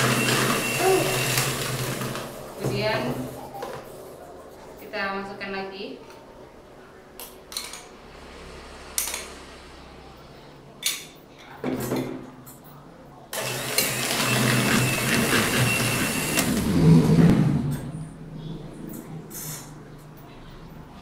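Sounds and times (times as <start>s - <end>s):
electric hand mixer whirring: 0.0s - 3.0s, 13.4s - 17.6s.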